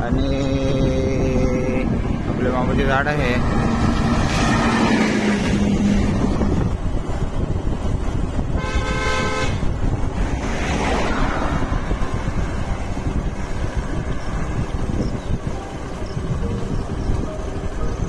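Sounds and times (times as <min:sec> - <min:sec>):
vehicle road rumble and wind: 0:00.0 - 0:18.0
vehicle passing whoosh: 0:01.8 - 0:08.0, 0:09.5 - 0:17.9
vehicle horn: 0:08.5 - 0:09.7.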